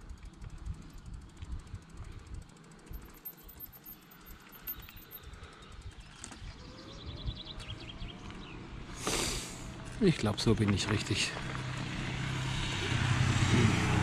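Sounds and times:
bicycle freewheel ticking: 0:00.0 - 0:06.0.

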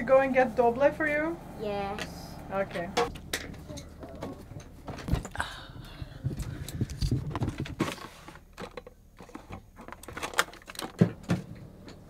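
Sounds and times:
things shifted in plastic drawer: 0:07.1 - 0:11.5.

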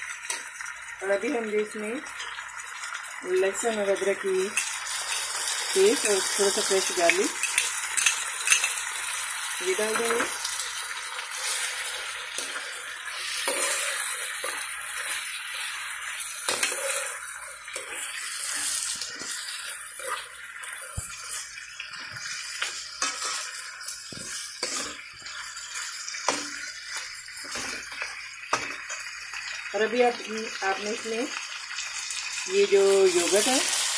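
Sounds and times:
meat sizzling in oil: 0:00.0 - 0:33.9
metal spoon scraping a wok: 0:11.3 - 0:15.8, 0:16.4 - 0:21.4, 0:22.7 - 0:26.7.

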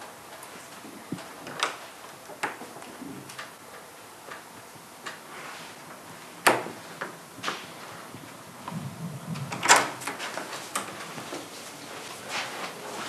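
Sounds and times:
door opening and shutting: 0:09.3 - 0:11.5
door latch clicks and knocks: 0:09.5 - 0:10.0.

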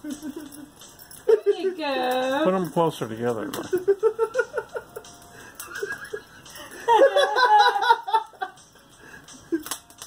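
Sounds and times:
people laughing: 0:03.6 - 0:08.6.

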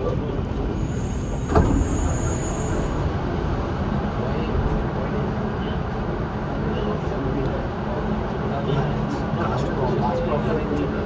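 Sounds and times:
train rumbling in motion: 0:00.0 - 0:11.0
thin high whine: 0:00.8 - 0:03.2.

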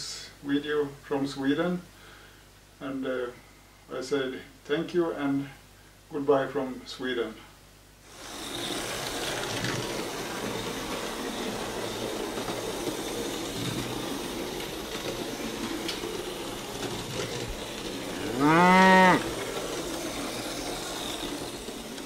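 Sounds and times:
steady rushing noise: 0:08.1 - 0:18.5.

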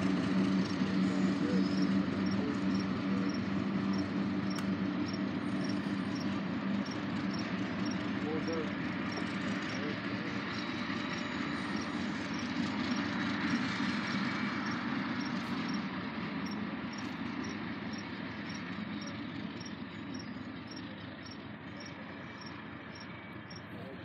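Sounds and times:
diesel locomotive engine rumbling: 0:00.0 - 0:24.0
crickets chirping: 0:01.5 - 0:08.1, 0:14.6 - 0:21.4.

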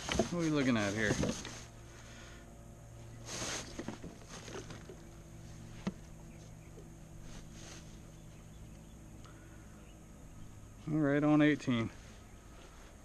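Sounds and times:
handling rustle: 0:00.0 - 0:01.8, 0:03.2 - 0:06.1, 0:07.2 - 0:08.5
faint steady hum: 0:00.0 - 0:13.0.

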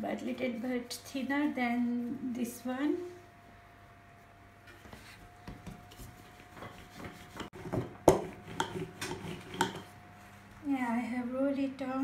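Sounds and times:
rolling pin on wooden board: 0:04.8 - 0:09.9.

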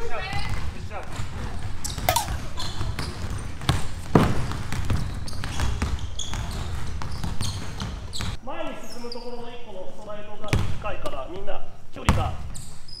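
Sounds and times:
basketballs bouncing on wooden floor: 0:00.0 - 0:08.4, 0:10.5 - 0:10.9, 0:12.1 - 0:12.6
sneaker squeaks: 0:00.2 - 0:09.4, 0:12.1 - 0:13.0.

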